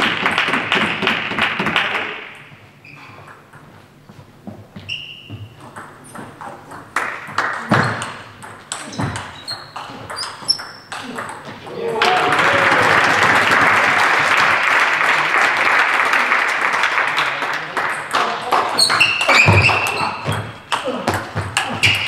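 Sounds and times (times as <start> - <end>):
crowd clapping and voices: 0.0 - 2.4, 11.7 - 19.2
table tennis balls pinging: 0.0 - 12.6, 17.9 - 22.0.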